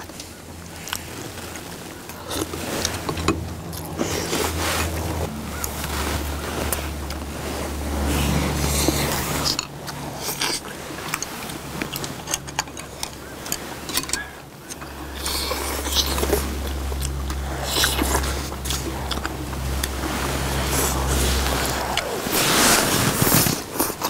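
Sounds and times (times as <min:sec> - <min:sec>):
people chewing and slurping: 0:00.0 - 0:24.0
wind rumble on microphone: 0:00.0 - 0:24.0
chopsticks clicking on bowls: 0:08.8 - 0:20.1.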